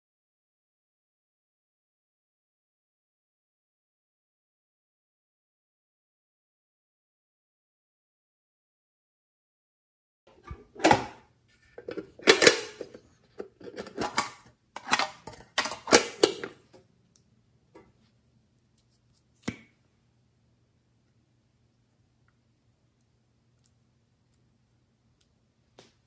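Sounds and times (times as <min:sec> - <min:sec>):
metal tin lid clattering: 0:10.4 - 0:11.2, 0:11.8 - 0:16.8.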